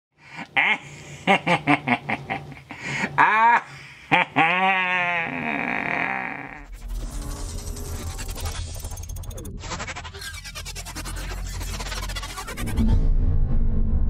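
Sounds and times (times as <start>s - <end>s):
man cackling laugh: 0.2s - 6.7s.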